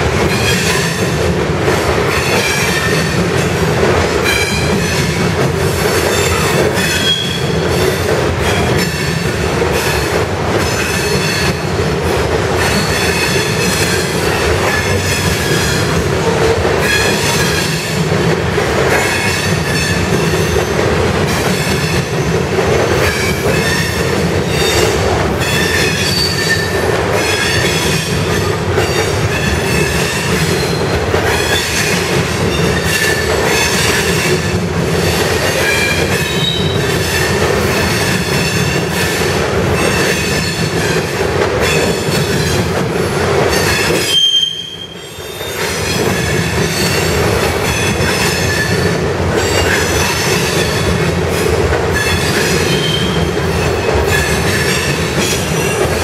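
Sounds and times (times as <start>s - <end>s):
steel wheels rumbling on rail: 0.0s - 56.0s
high-pitched wheel squeals: 44.0s - 45.7s, 52.0s - 53.2s.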